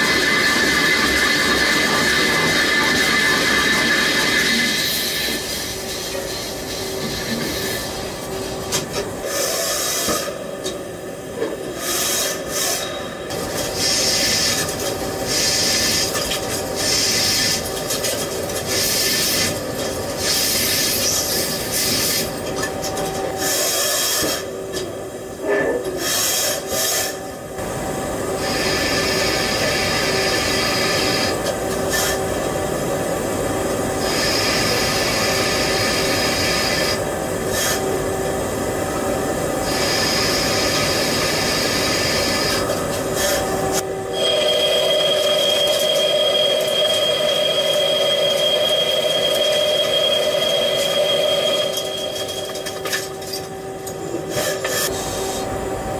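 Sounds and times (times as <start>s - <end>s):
machine whining: 33.7s - 55.9s
machine cutting steel: 44.1s - 53.5s.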